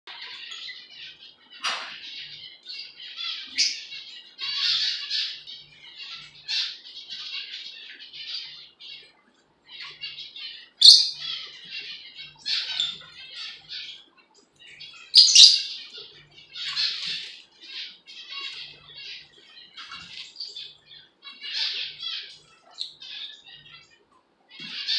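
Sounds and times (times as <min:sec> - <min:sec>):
lovebirds chirping: 0:00.1 - 0:24.9
harsh bird squawks: 0:09.7 - 0:23.9.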